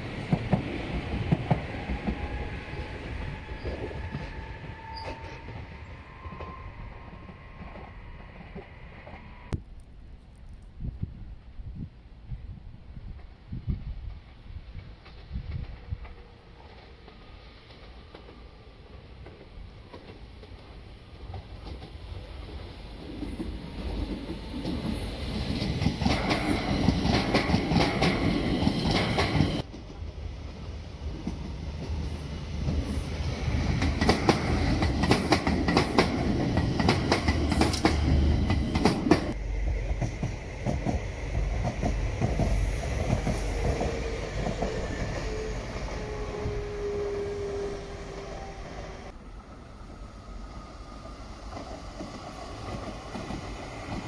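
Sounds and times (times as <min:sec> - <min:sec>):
train rumble with faint whine: 0:00.0 - 0:54.0
train wheels clicking over rail joints: 0:19.2 - 0:46.2.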